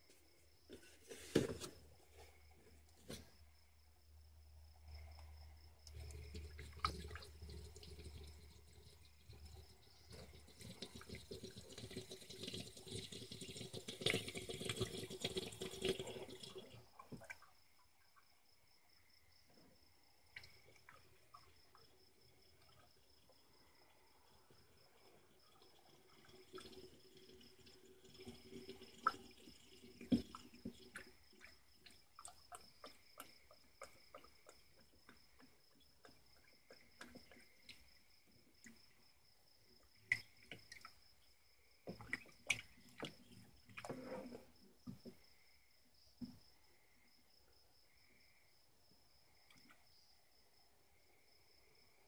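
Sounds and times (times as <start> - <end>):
oil glugging into a funnel: 4.9 - 17.6, 20.3 - 38.9, 39.8 - 41.1, 41.8 - 45.3.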